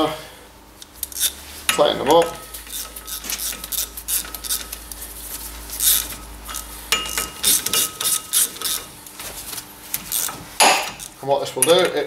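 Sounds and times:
ratchet clicking: 0:00.8 - 0:05.0, 0:05.8 - 0:08.9, 0:10.1 - 0:11.9.

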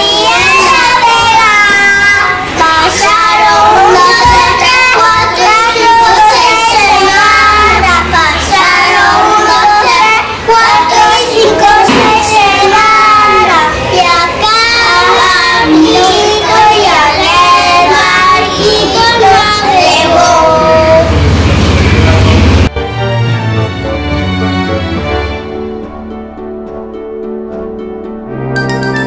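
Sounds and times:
young children singing: 0:00.0 - 0:21.2.

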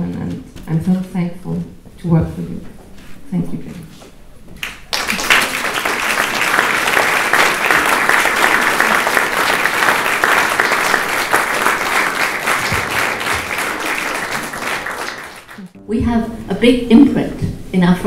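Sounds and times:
audience applause: 0:04.6 - 0:15.7.

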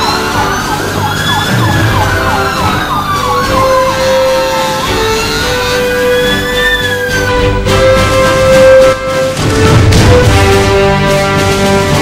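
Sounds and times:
siren fast yelp: 0:00.0 - 0:07.4
siren slow wail: 0:00.0 - 0:07.5.

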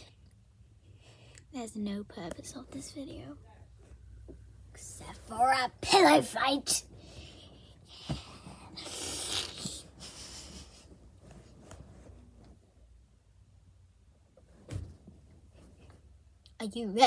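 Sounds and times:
rustling close to microphone: 0:09.6 - 0:12.7.

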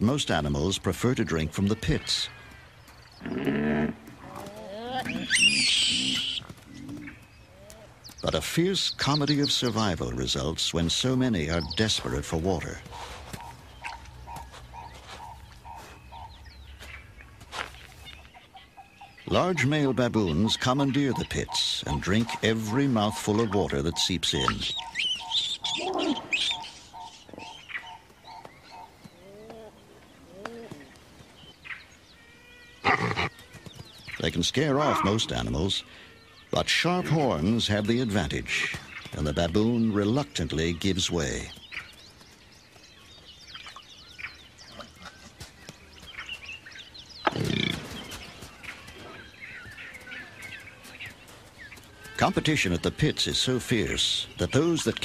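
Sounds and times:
loud sudden animal call: 0:03.2 - 0:06.4
bird lower arching calls: 0:03.2 - 0:09.7, 0:11.4 - 0:17.0, 0:17.7 - 0:31.0.

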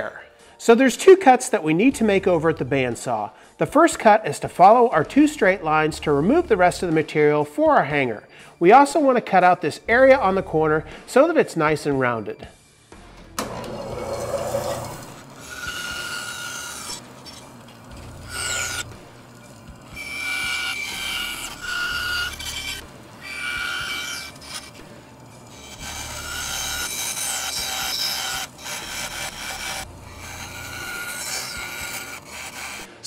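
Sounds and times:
bandsaw motor humming: 0:13.2 - 0:33.0
saw blade rasping through wood: 0:13.4 - 0:33.0.

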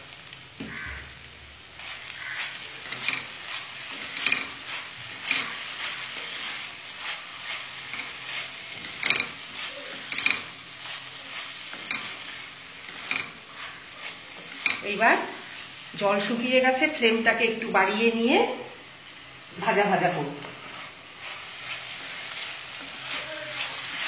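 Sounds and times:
low sizzle: 0:00.0 - 0:24.0
spatula scraping a pan: 0:01.7 - 0:16.4, 0:20.4 - 0:24.0.

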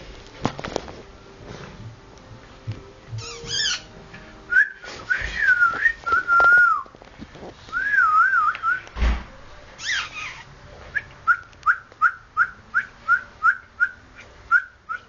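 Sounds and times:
high squeak: 0:03.2 - 0:03.9, 0:09.8 - 0:10.5
person whistling: 0:04.5 - 0:06.8, 0:07.7 - 0:08.8
thump: 0:09.0 - 0:09.4.

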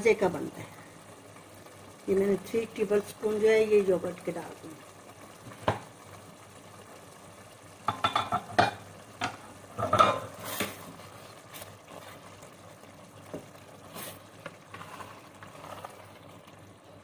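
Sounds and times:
soft sizzle from pot: 0:00.0 - 0:17.0
spoon scraping in a pot: 0:13.8 - 0:16.2.

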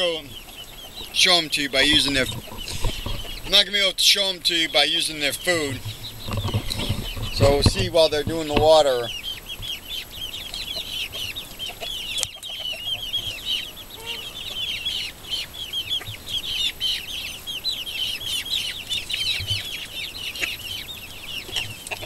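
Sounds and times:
chicks peeping: 0:00.0 - 0:22.0.

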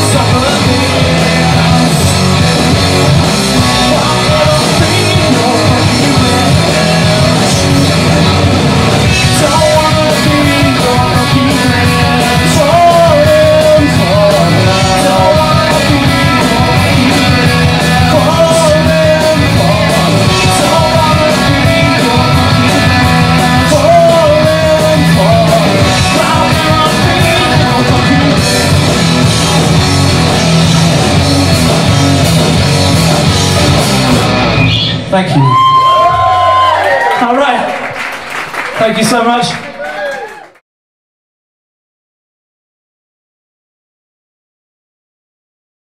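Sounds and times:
man singing: 0:00.0 - 0:08.4, 0:09.0 - 0:29.0
live rock band playing: 0:00.0 - 0:36.6.

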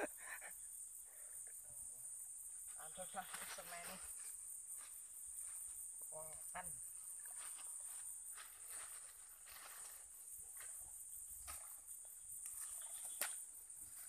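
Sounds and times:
high-pitched insect chorus: 0:00.0 - 0:14.0
rustling of grass: 0:07.1 - 0:14.0
footsteps in undergrowth: 0:07.3 - 0:10.8.

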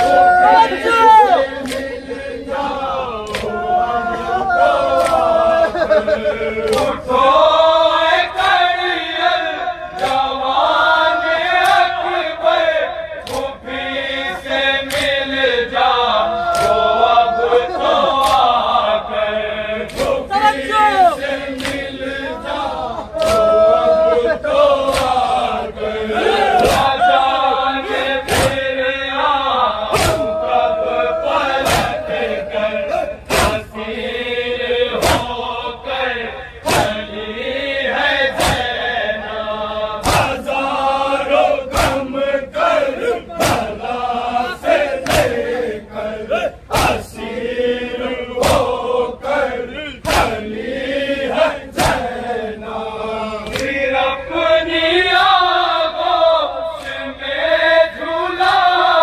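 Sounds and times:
men chanting a lament: 0:00.0 - 0:59.0
sharp rhythmic beat: 0:29.8 - 0:33.9.

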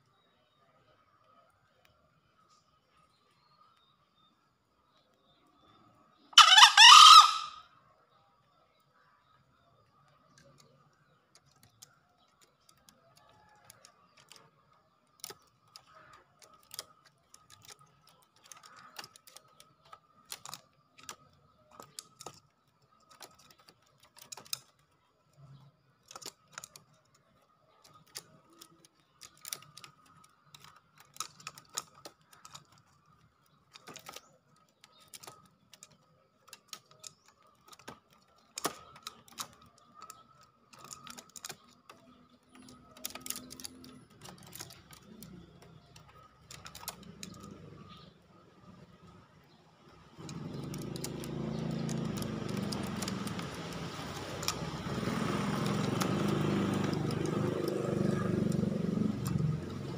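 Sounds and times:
sharp taps and clicks: 0:50.1 - 0:59.9.

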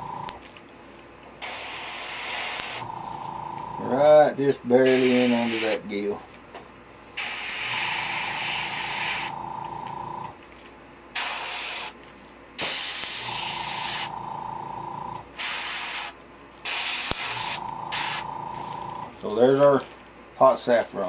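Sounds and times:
airbrush whine: 0:00.0 - 0:00.3, 0:01.4 - 0:04.1, 0:04.8 - 0:05.8, 0:07.2 - 0:10.3, 0:12.6 - 0:19.1
airbrush hissing: 0:01.4 - 0:03.3, 0:04.8 - 0:05.8, 0:07.2 - 0:09.4, 0:11.2 - 0:12.0, 0:12.6 - 0:14.2, 0:15.4 - 0:19.0.

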